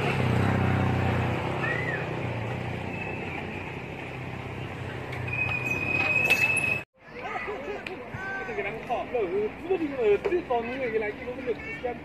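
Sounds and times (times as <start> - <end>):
high whistling tone: 2.8 - 3.9, 5.2 - 6.8.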